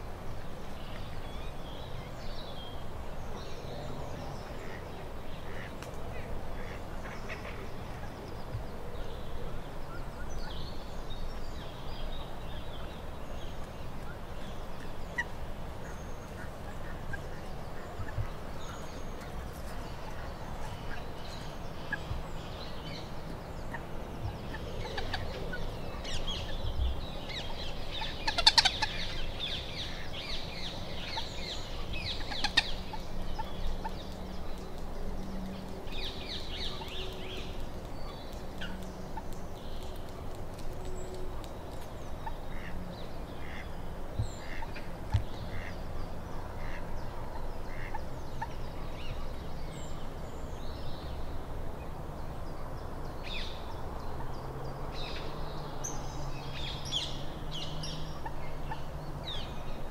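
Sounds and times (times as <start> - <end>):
waterbirds calling: 0.0 - 51.8.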